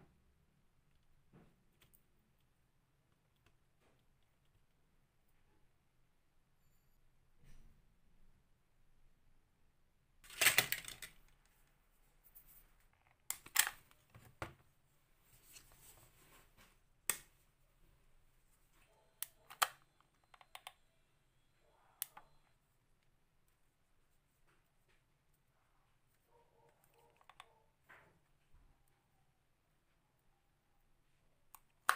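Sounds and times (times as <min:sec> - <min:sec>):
plastic pieces clicking: 0:10.2 - 0:11.4, 0:13.0 - 0:13.9.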